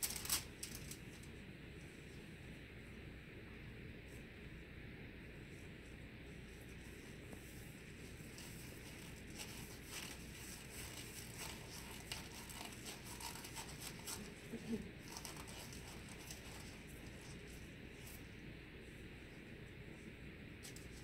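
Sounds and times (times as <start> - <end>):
glove crinkling and rustling: 0.0 - 1.2, 7.2 - 18.2.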